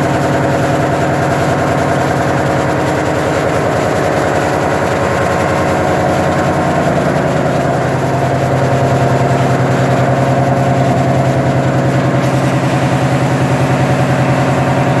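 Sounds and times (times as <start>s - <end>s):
engine-room machinery droning: 0.0s - 15.0s.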